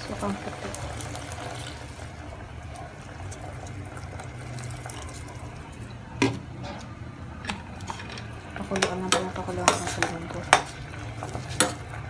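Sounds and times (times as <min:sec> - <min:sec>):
vinegar pouring into a pot: 0:00.0 - 0:06.0.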